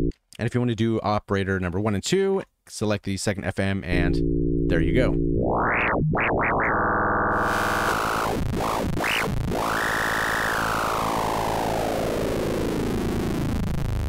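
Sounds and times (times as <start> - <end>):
synthesizer note sweeping: 3.9 - 12.2.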